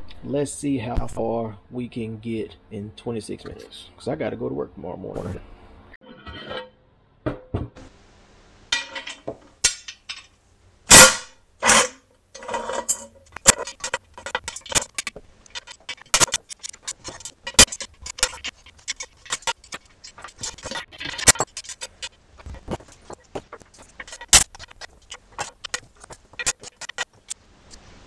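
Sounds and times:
loud metal clanks: 0:10.9 - 0:27.4.

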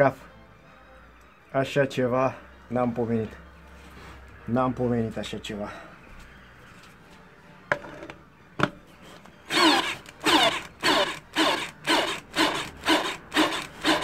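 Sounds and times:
cordless drill bogging down: 0:09.5 - 0:14.0.

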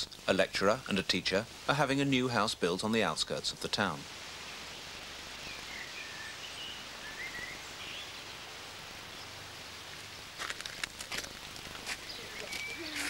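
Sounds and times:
steady background hiss: 0:00.0 - 0:13.0
faint bird chirps: 0:05.4 - 0:08.5, 0:12.0 - 0:13.0.

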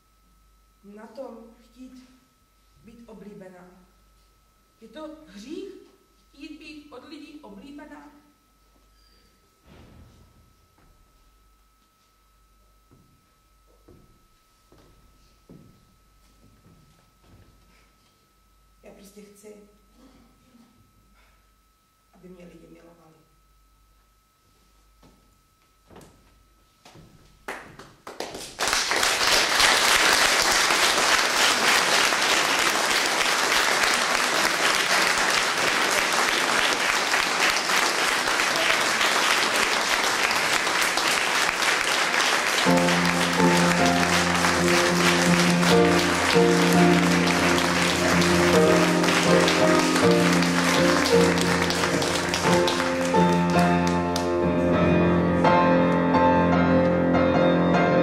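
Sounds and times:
audience applauding: 0:27.5 - 0:54.4
piano music: 0:39.2 - 0:58.0.

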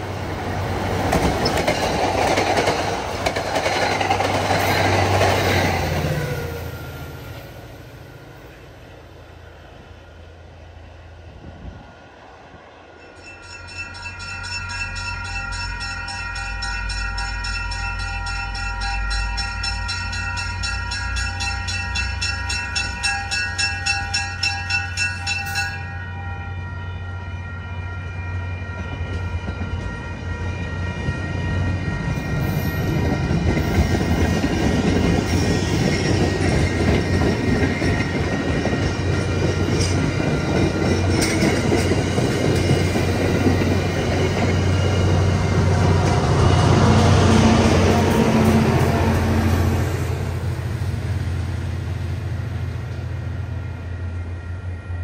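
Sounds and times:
train wheels rumbling on rails: 0:00.0 - 0:55.0
wheels clacking over rail joints: 0:00.6 - 0:06.4.

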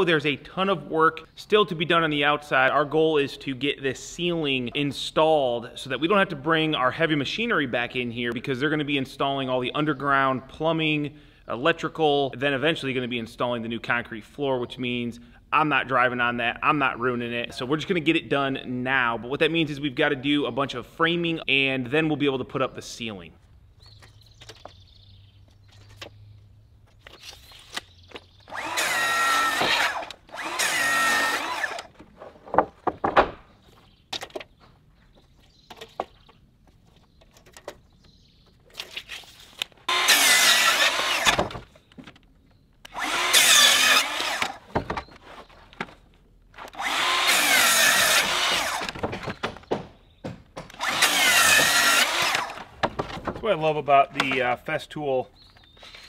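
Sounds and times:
track saw cutting wood: 0:28.5 - 0:31.9, 0:39.9 - 0:41.5, 0:42.9 - 0:44.7, 0:46.6 - 0:49.0, 0:50.8 - 0:52.7
boards knocking: 0:31.9 - 0:33.5, 0:48.6 - 0:50.8, 0:51.4 - 0:53.5.

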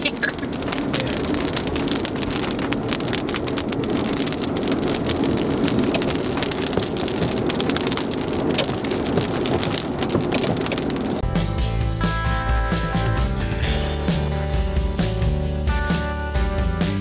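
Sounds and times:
rain ticking on windshield: 0:00.0 - 0:11.3
road and engine hum: 0:00.0 - 0:17.0.

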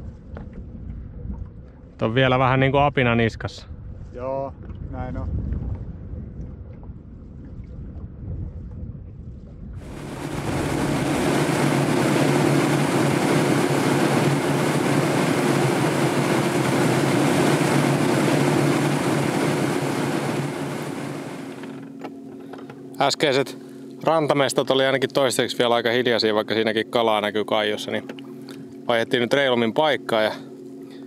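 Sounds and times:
outboard engine drone: 0:00.0 - 0:04.0, 0:05.5 - 0:31.0
wind noise: 0:02.6 - 0:21.7
rushing water: 0:09.8 - 0:21.7.

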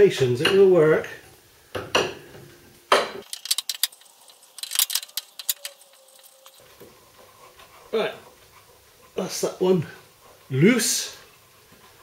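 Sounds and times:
ratchet spanner clicking: 0:03.2 - 0:06.6.

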